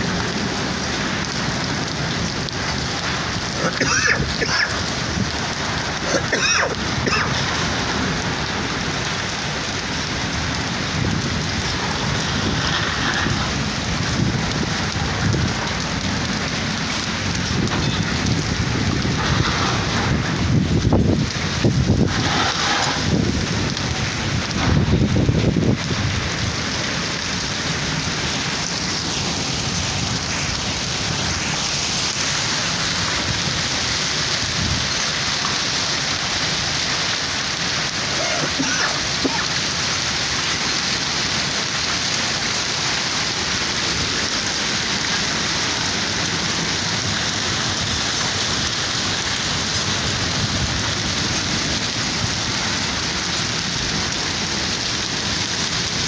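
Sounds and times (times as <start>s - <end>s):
heavy rain on hard ground: 0.0s - 56.0s
low rumble: 7.4s - 26.5s.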